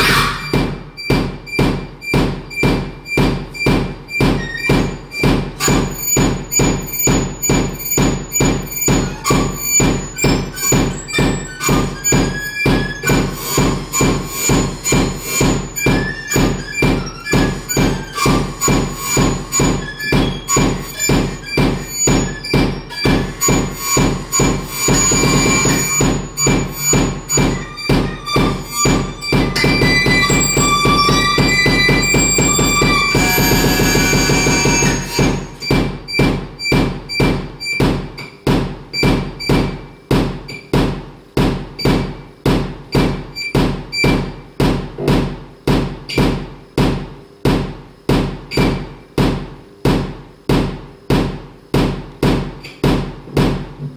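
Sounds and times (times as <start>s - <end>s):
held high synth tones: 0.0s - 36.8s
electronic music pulse: 0.0s - 37.8s.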